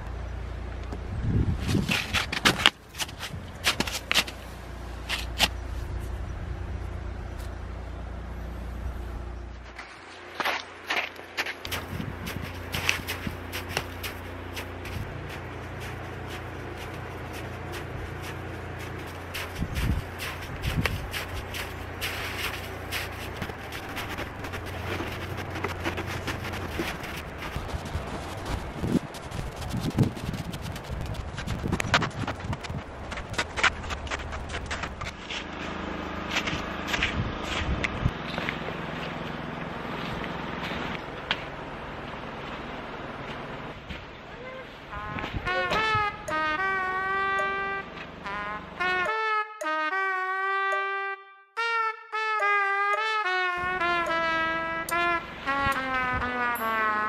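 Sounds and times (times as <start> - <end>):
steady low rumble: 0.0 - 49.0, 53.5 - 57.0
snowshoes crunching on icy snow: 9.7 - 31.5.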